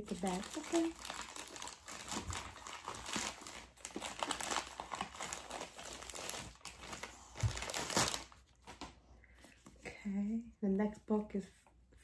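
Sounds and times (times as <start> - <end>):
plastic bag crinkling and tearing: 0.0 - 8.9.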